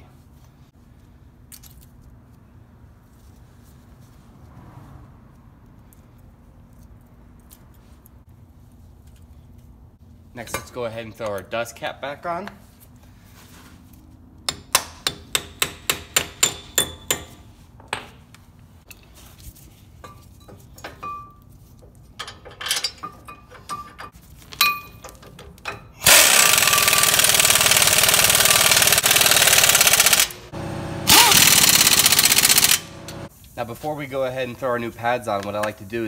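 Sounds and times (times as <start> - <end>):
hammer tapping metal: 14.5 - 18.1
pneumatic impact wrench: 26.0 - 33.3.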